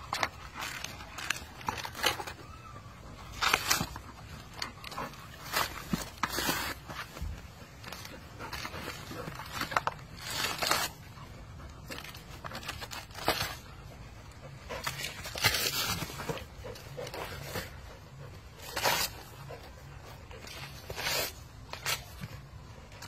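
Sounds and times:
dog ripping coconut husk: 0:00.0 - 0:23.0.

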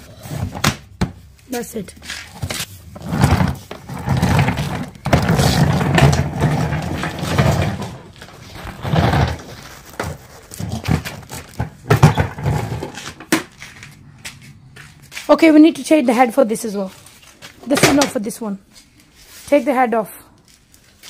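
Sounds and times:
vacuum cleaner scraping on concrete: 0:02.0 - 0:18.1.

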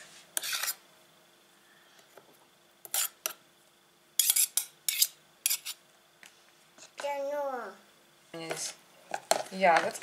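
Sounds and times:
metal spoons scraping and clinking: 0:00.4 - 0:00.8, 0:02.8 - 0:03.4, 0:04.2 - 0:05.8.

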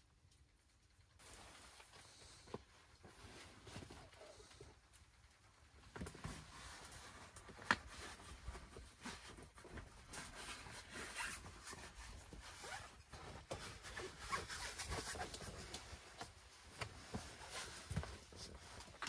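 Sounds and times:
fabric and cord rustling: 0:00.7 - 0:19.0.

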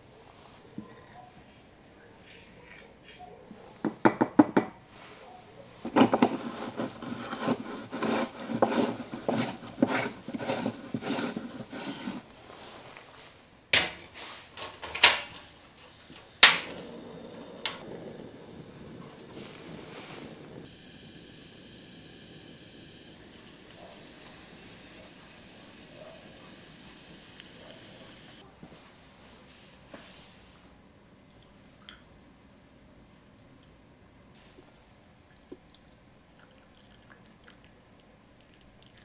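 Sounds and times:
gas burner hiss: 0:05.8 - 0:13.2, 0:13.8 - 0:28.4.

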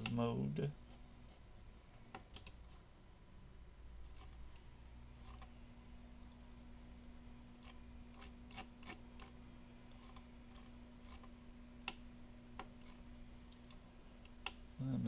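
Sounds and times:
computer mouse clicks: 0:00.0 - 0:00.2, 0:02.1 - 0:02.7, 0:07.6 - 0:14.6
low steady hum: 0:00.0 - 0:15.0.

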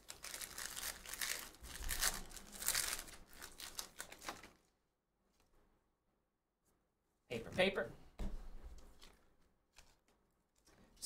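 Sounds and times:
card pack wrapper tearing and crinkling: 0:00.0 - 0:04.6.

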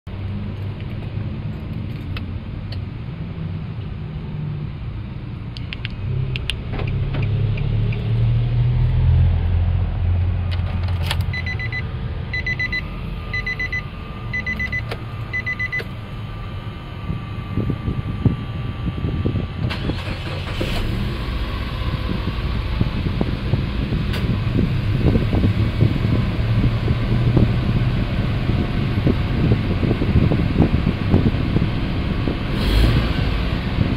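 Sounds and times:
low rumble: 0:00.2 - 0:33.9
car engine starting and idling: 0:04.7 - 0:33.9
short dashboard chimes: 0:11.3 - 0:11.8, 0:12.4 - 0:15.9.

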